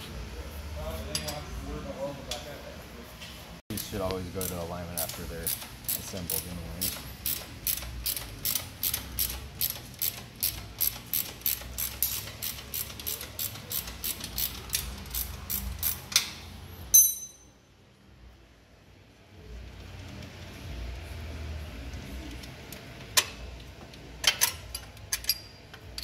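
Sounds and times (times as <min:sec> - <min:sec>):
ratchet wrench clicking: 0:03.7 - 0:17.4
loud metallic clink: 0:16.9 - 0:17.6.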